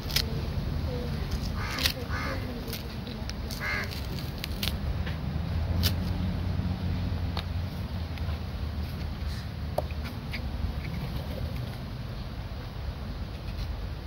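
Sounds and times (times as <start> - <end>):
banana skin snapping: 0.0 - 0.3, 1.3 - 2.0, 2.7 - 6.3
steady low rumble: 0.0 - 14.0
bird calling: 0.9 - 2.7, 3.5 - 4.0
banana peel being pulled off: 2.7 - 6.3.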